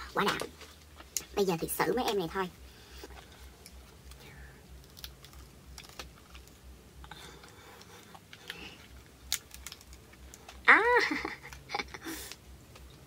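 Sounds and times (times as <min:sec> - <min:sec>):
lobster shell cracking: 0:03.6 - 0:13.0.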